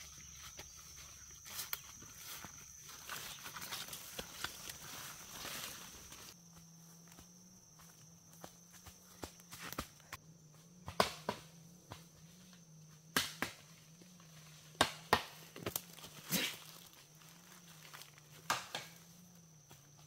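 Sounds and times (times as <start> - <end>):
sharp chopping strikes: 10.8 - 11.5, 14.8 - 16.5.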